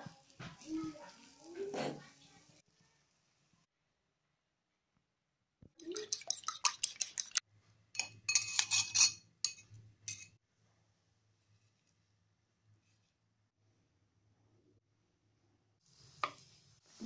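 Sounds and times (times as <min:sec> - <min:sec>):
fork clinking against ceramic bowl: 0:08.0 - 0:10.4.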